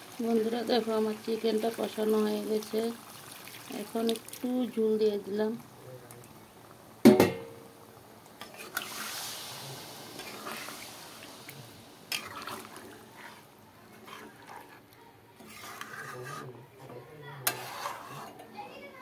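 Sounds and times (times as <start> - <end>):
gravy sloshing and bubbling: 0.0 - 7.0, 7.9 - 16.5
metal spatula stirring in pan: 8.4 - 18.9.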